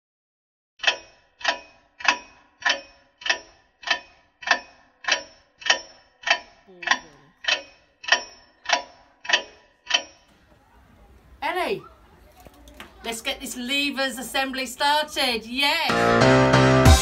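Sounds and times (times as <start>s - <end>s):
clock ticking: 0.8s - 10.5s.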